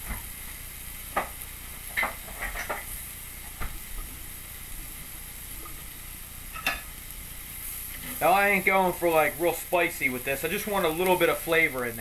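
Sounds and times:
sharp pops and crackles: 0.0s - 4.9s, 10.6s - 11.4s
meat sizzling on grill pan: 0.0s - 12.0s.

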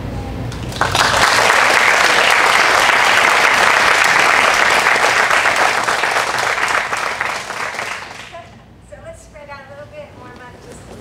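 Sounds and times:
crowd applauding: 0.5s - 8.4s.

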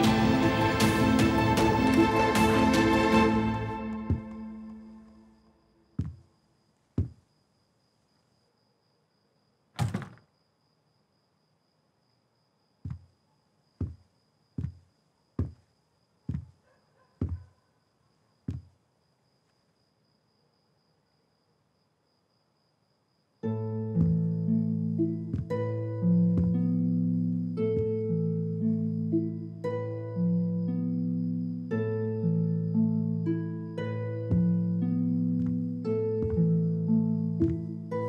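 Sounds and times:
background music: 0.0s - 5.5s, 23.6s - 38.0s
footsteps on carpet: 4.0s - 4.5s, 6.0s - 6.2s, 7.0s - 7.2s, 12.8s - 13.2s, 13.8s - 15.7s, 16.3s - 16.6s, 17.2s - 17.5s, 25.2s - 25.6s, 37.4s - 37.7s
door shutting with a thud: 9.8s - 10.3s.

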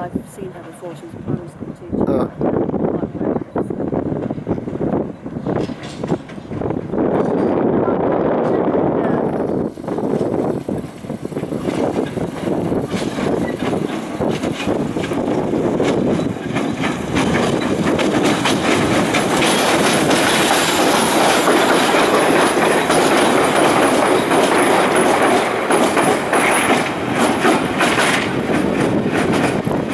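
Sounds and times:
train wheels clattering on rails: 3.8s - 29.9s
wheels squealing: 10.3s - 28.4s.

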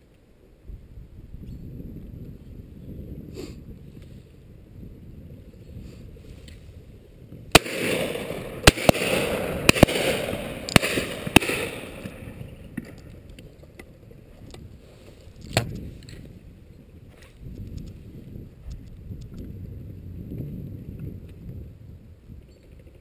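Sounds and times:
shotgun shots: 7.5s - 12.9s.

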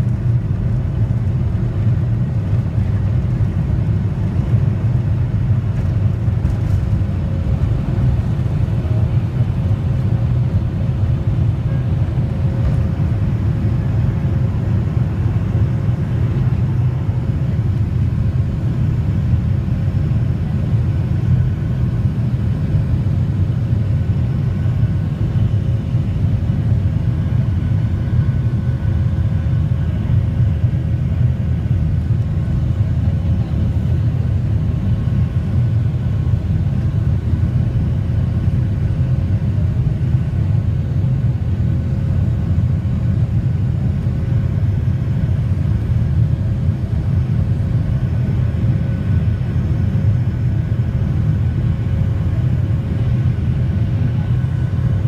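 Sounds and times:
jet engines rumbling in cabin: 0.0s - 55.0s.

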